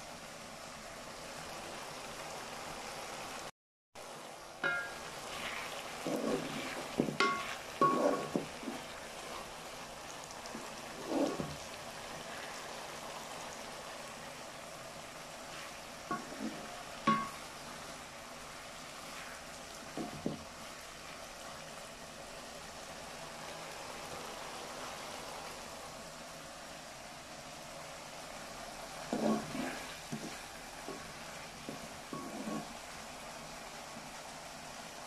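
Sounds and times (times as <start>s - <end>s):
vegetables sizzling in a pan: 0.0s - 35.0s
wooden spatula scraping a pan: 4.6s - 9.6s, 10.4s - 12.6s, 15.4s - 17.5s, 18.9s - 20.4s, 29.0s - 32.8s.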